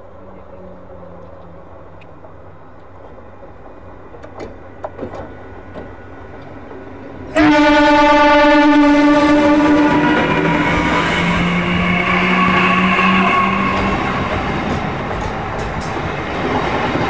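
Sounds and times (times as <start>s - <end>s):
electric train rumbling on track: 0.0s - 17.0s
train horn blast: 7.3s - 14.3s.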